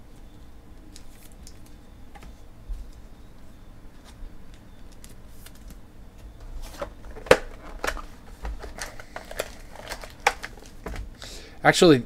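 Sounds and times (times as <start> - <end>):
cards and packaging clicking and crinkling: 6.6 - 11.1.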